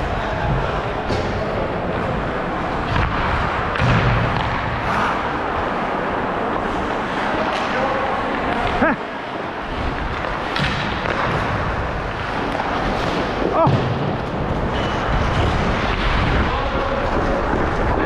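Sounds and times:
skate blades scraping ice: 0:06.5 - 0:18.0.

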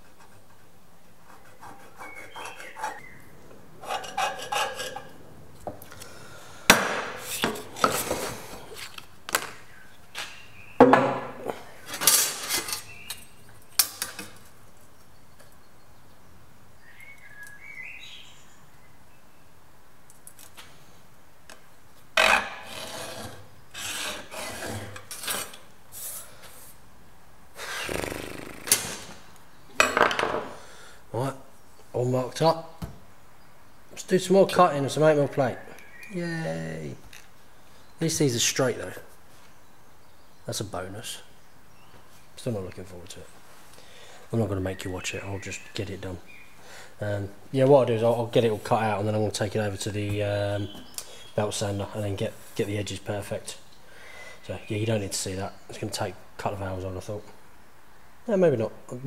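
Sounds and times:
scriber scratching metal plate: 0:03.8 - 0:05.2, 0:22.2 - 0:25.6.

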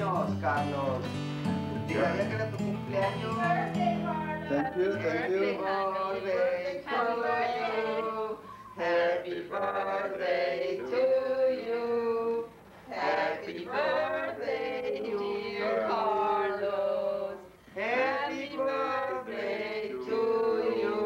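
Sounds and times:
voices singing a song: 0:04.5 - 0:21.0.

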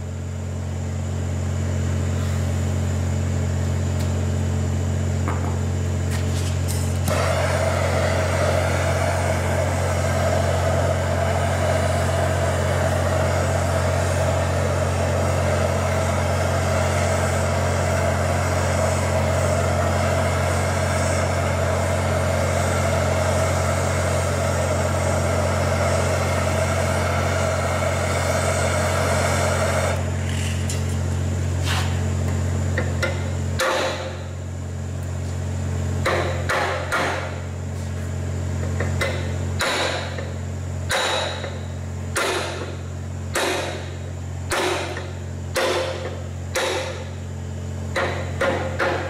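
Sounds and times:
low engine-like hum: 0:00.0 - 0:40.8
gas torch flame hissing: 0:06.1 - 0:32.1.

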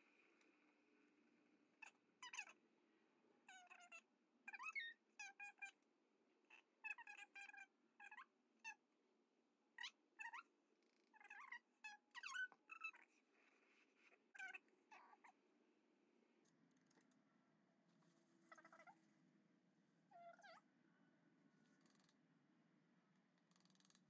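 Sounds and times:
faint animal chirping: 0:01.8 - 0:02.6, 0:03.4 - 0:05.8, 0:06.5 - 0:08.8, 0:09.8 - 0:15.4, 0:18.4 - 0:19.1, 0:20.1 - 0:20.7, 0:21.8 - 0:22.1.

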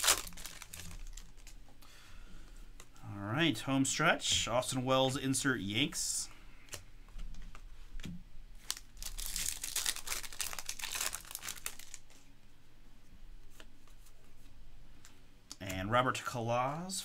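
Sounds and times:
foil wrapper tearing and crinkling: 0:00.0 - 0:01.6, 0:08.6 - 0:12.2.

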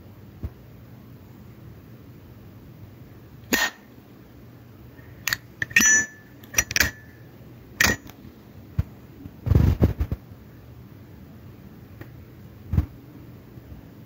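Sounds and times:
metal lighter lid clicking: 0:05.3 - 0:07.1, 0:07.8 - 0:08.1
metallic ping: 0:05.3 - 0:07.2, 0:07.8 - 0:08.1.

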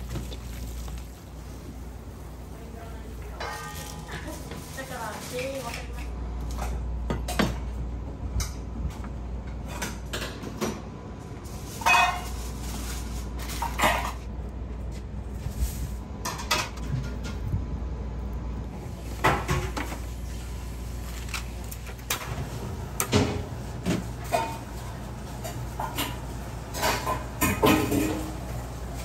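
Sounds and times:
pots and utensils clattering: 0:03.2 - 0:07.6, 0:11.6 - 0:14.3, 0:19.0 - 0:20.2, 0:21.2 - 0:29.0.

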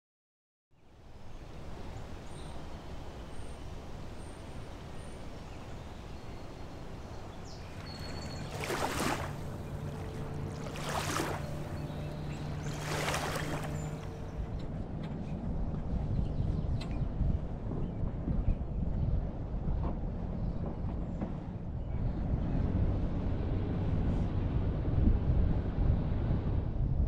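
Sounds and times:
outdoor background wash: 0:00.7 - 0:27.0
low steady hum: 0:01.2 - 0:19.5
water splashing: 0:06.7 - 0:14.4.

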